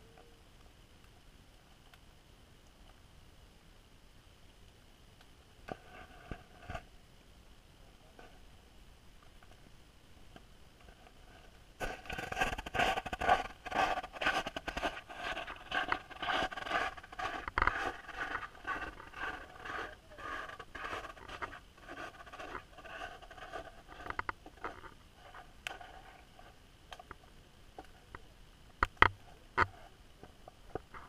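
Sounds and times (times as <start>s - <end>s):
rapid scraping and scratching: 10.8s - 26.6s.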